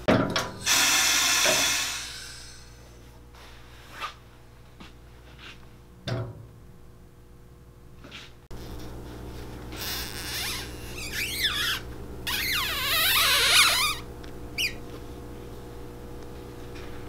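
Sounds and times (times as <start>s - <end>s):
low machine hum: 0.0s - 17.0s
wavering squeaking: 9.8s - 14.0s, 14.6s - 14.8s.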